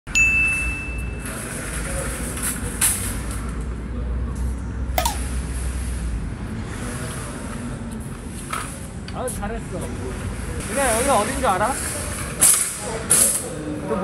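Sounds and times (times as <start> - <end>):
high steady beep: 5.0 - 5.3.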